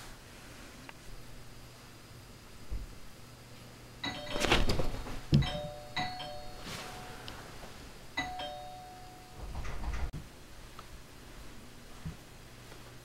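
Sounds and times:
two-tone doorbell chime: 4.0s - 4.7s, 5.4s - 7.3s, 8.2s - 9.6s
rustling: 6.3s - 7.8s.

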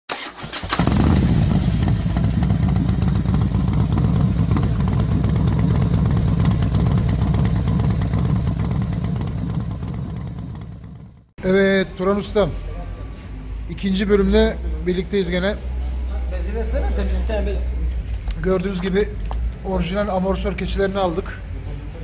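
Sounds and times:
motorcycle engine running: 0.8s - 11.3s.

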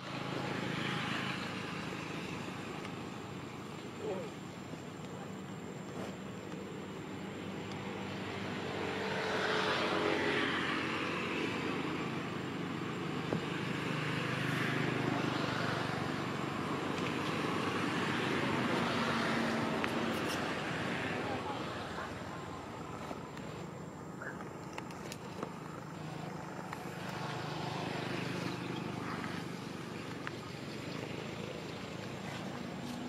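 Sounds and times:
vehicle engine running: 20.9s - 33.0s.

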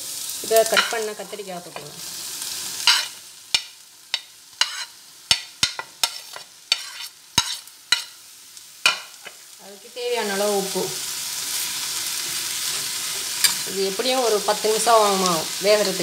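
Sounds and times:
faint sizzle: 0.0s - 16.0s.

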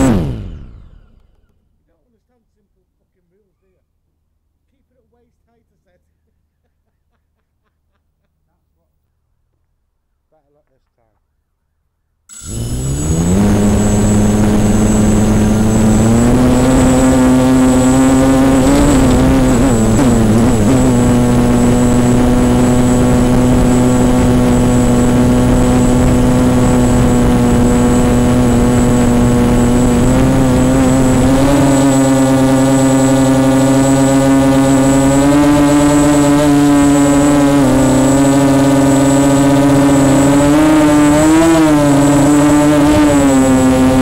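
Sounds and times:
drone motors humming and whining: 0.0s - 1.6s, 12.3s - 44.0s.

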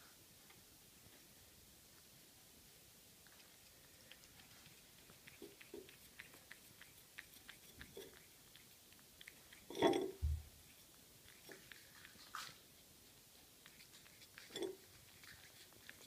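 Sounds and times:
dish scrape and thump: 9.7s - 10.4s.

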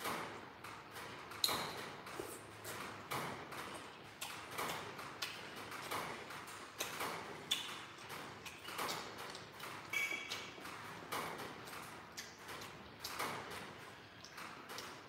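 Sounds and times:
chewing and smacking: 3.6s - 10.8s, 11.4s - 15.0s.

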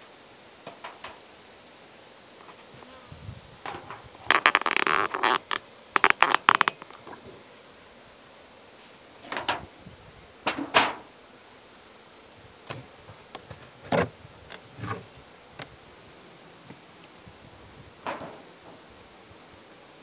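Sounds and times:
honeybees buzzing: 0.1s - 20.0s
hive covers knocking and scraping: 0.6s - 1.2s, 2.4s - 7.6s, 9.2s - 9.8s, 10.4s - 11.1s, 12.6s - 15.8s, 18.0s - 18.9s.

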